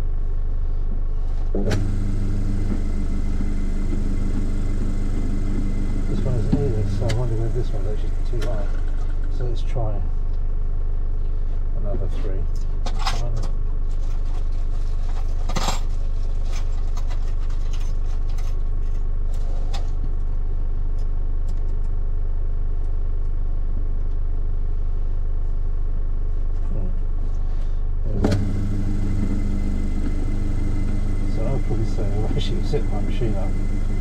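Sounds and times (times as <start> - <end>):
low steady hum: 0.9 - 10.5, 27.5 - 34.0
machine motor humming: 1.6 - 9.1, 28.1 - 34.0.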